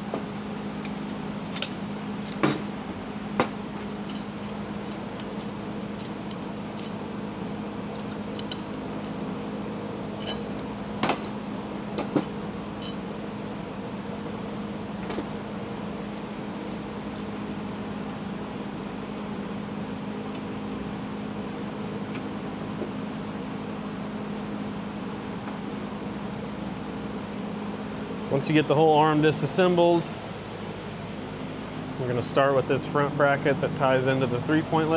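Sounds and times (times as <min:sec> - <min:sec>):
steady machine hum: 0:00.0 - 0:34.9
metal parts clicking and clinking: 0:08.0 - 0:10.7, 0:12.8 - 0:13.0.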